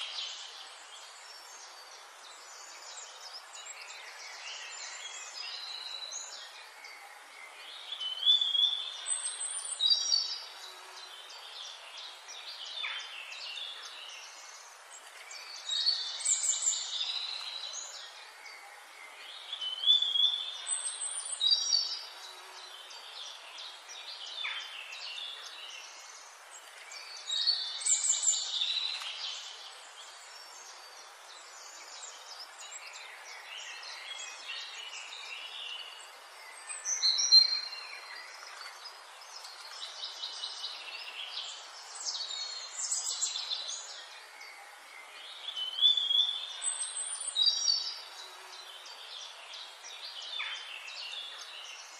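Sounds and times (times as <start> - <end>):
forest background hiss: 0.0 - 51.9
songbirds chirping and whistling: 0.0 - 51.9.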